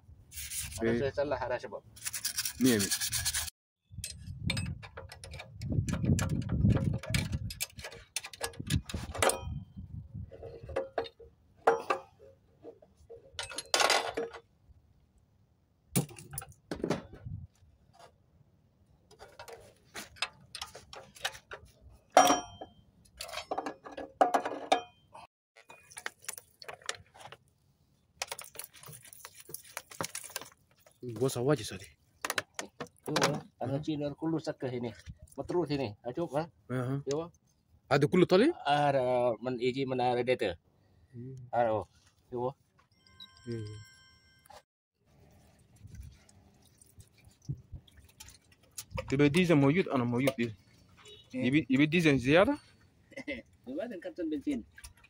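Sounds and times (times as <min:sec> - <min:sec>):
metal clinks and knocks of wrench: 0:13.4 - 0:14.4.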